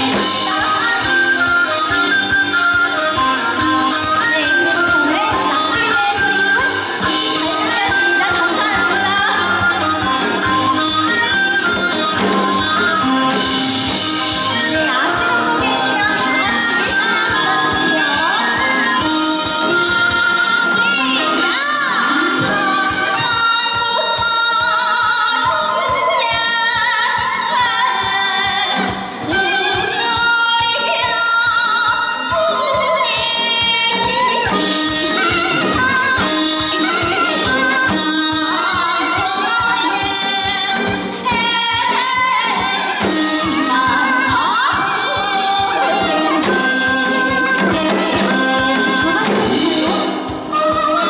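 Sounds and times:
steady drum beat: 0.0s - 24.6s, 33.0s - 51.0s
bamboo flute: 0.0s - 27.2s
woman singing with vibrato: 0.0s - 51.0s.

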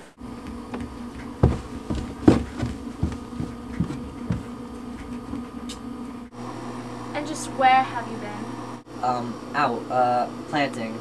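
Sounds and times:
knocks or thumps: 1.4s - 4.5s
low buzz: 5.5s - 11.0s.

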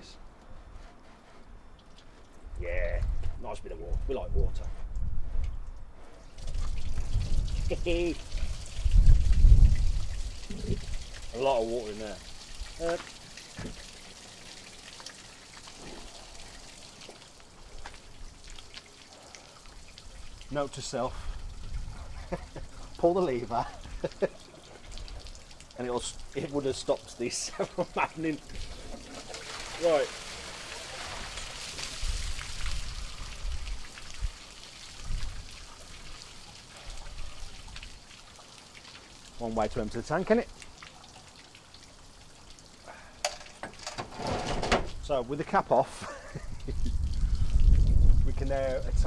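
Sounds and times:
water dripping: 1.6s - 3.2s, 3.9s - 44.0s, 44.9s - 49.0s
water splashing onto ground: 6.2s - 45.2s, 46.2s - 49.0s
dull low bumps: 46.4s - 49.0s.

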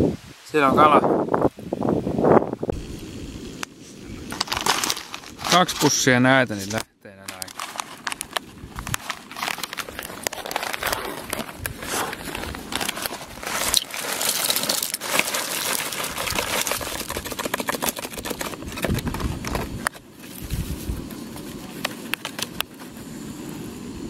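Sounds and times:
plastic packet crinkling: 4.3s - 6.0s, 6.6s - 20.5s
dry pasta pouring into pot: 12.3s - 17.8s.

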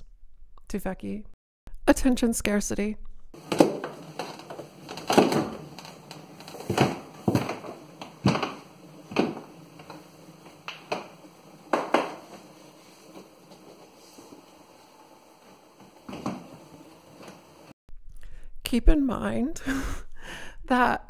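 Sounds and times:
rustling and handling knocks: 3.4s - 17.5s.

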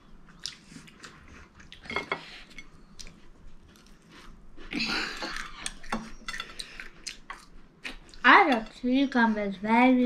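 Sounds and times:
person chewing: 0.3s - 8.2s.

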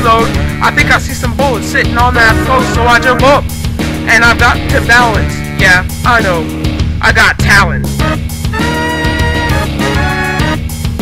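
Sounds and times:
hip-hop drum beat: 0.2s - 7.0s
held synth notes: 1.9s - 3.9s.

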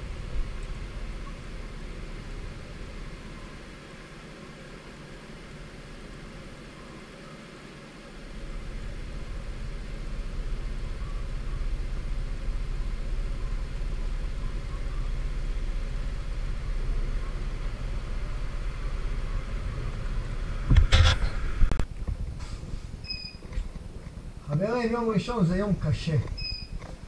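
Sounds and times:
scooter engine rumble: 0.0s - 24.5s
wind and road noise: 15.4s - 24.5s.

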